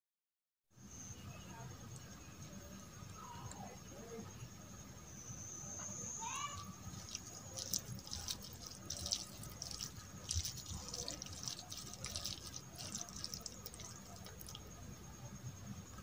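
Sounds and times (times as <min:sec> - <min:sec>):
wet squelches of rice mixed by hand: 0:06.3 - 0:14.8.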